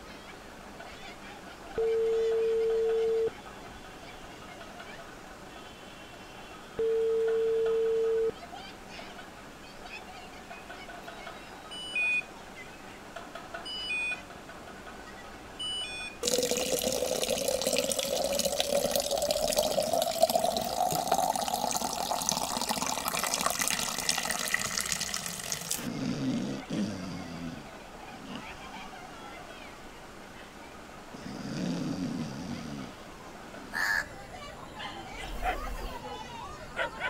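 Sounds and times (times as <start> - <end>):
water gushing into a container: 16.2 - 25.9.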